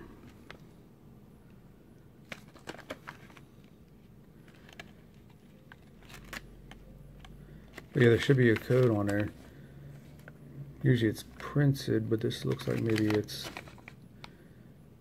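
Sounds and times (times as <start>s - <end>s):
plastic foil packet crinkling: 2.2s - 9.6s, 12.2s - 14.3s.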